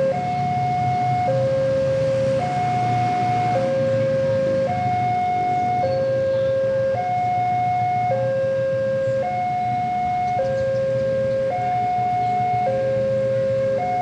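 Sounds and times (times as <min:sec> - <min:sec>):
level crossing two-tone alarm: 0:00.0 - 0:14.0.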